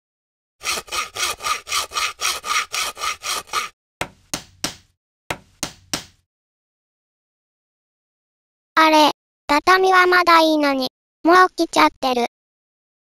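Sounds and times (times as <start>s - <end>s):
hand saw cutting wood: 0.6s - 4.8s.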